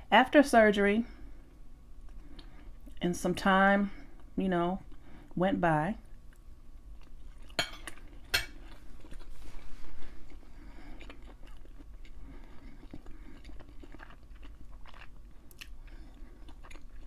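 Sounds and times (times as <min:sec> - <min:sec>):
person chewing food: 0:02.0 - 0:03.0, 0:06.2 - 0:17.0.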